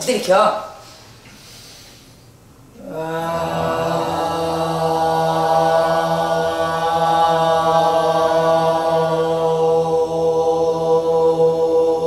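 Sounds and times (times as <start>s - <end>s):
voices singing sustained note: 2.8s - 12.0s.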